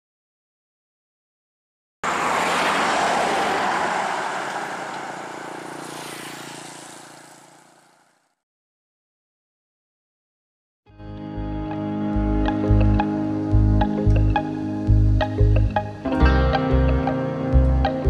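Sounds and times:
road vehicle rushing: 0:02.0 - 0:08.3.

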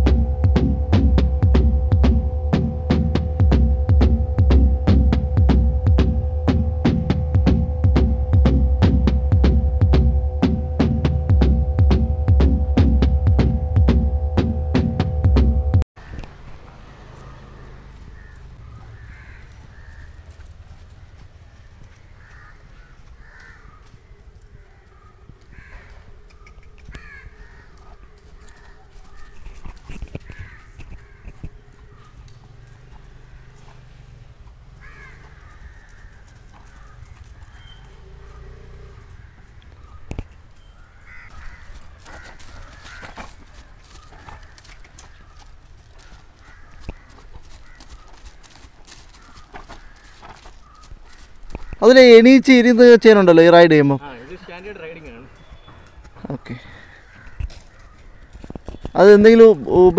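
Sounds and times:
horse hooves thudding: 0:00.0 - 0:52.2, 0:54.2 - 0:59.9
crows cawing: 0:16.0 - 0:59.9.

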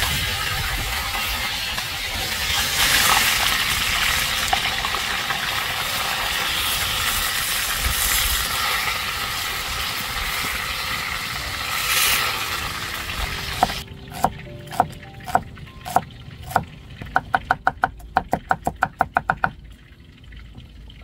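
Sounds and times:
hot oil sizzling in a wok: 0:00.0 - 0:13.9.

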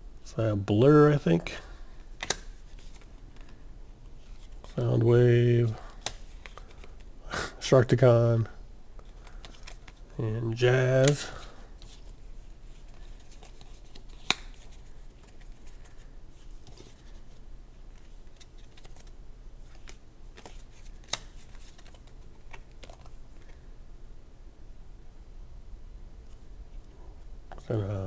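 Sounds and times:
playing cards clicking and rustling: 0:01.3 - 0:03.6, 0:05.7 - 0:07.1, 0:09.0 - 0:10.1, 0:10.8 - 0:23.6
sharp card clicks: 0:02.2 - 0:03.0, 0:13.9 - 0:14.7, 0:19.7 - 0:23.1.

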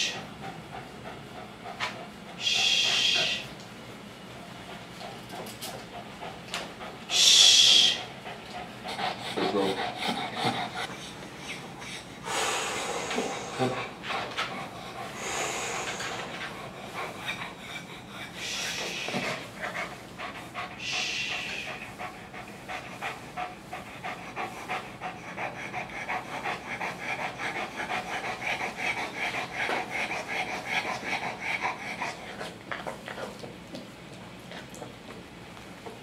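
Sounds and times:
dog panting: 0:00.0 - 0:35.3.

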